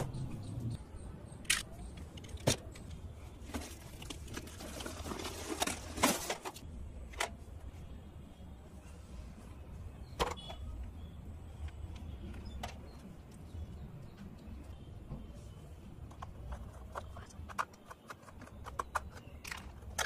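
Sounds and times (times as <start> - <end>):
scraping and rustling: 3.4 - 6.6.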